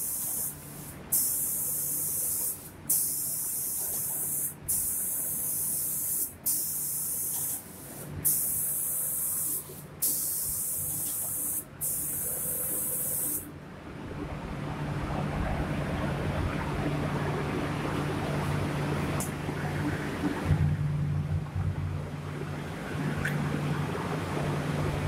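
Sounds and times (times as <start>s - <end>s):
spray gun air hiss: 0.0s - 13.5s
low rushing noise: 13.5s - 25.0s.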